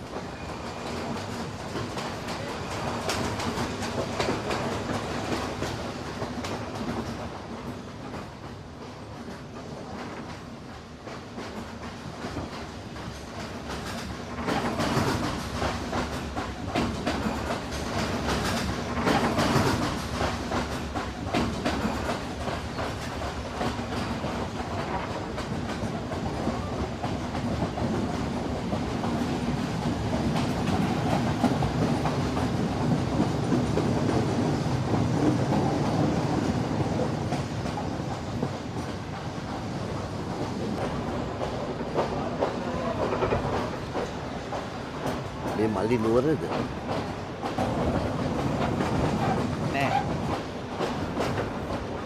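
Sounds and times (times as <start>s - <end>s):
train rumbling inside carriage: 0.0s - 52.0s
wheels clattering over rail joints: 12.4s - 39.2s.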